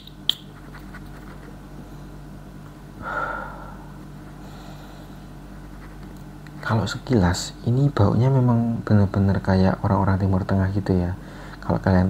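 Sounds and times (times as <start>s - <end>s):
steady low hum: 0.0s - 12.0s
person sniffing: 3.0s - 5.2s.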